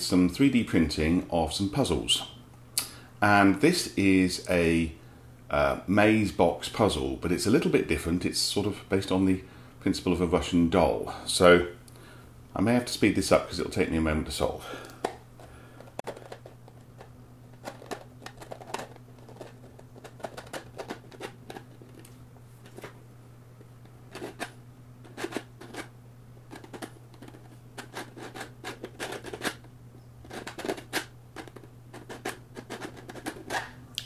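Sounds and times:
plastic clicks and scrapes: 15.8s - 23.0s, 24.1s - 25.9s, 26.5s - 33.8s.

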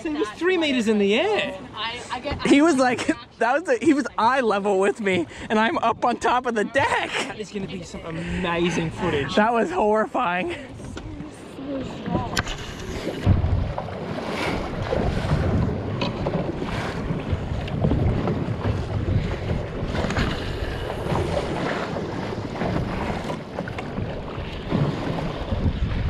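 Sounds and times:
water slapping against boat hull: 10.7s - 26.0s
wind rumbling on microphone: 10.7s - 26.0s.

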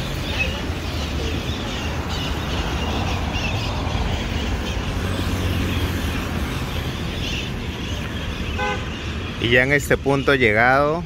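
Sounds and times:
city street traffic: 0.0s - 11.0s.

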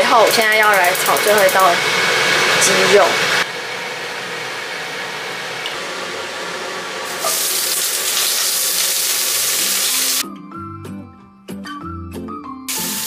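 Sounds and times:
hot oil hissing in a wok: 0.3s - 10.2s, 12.7s - 13.0s
chicken sizzling in oil: 0.8s - 10.2s, 12.7s - 13.0s.

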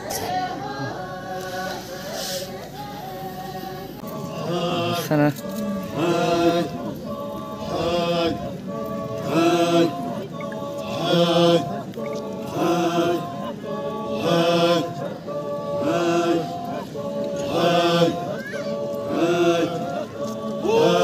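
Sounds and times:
men chanting in unison: 0.0s - 21.0s.

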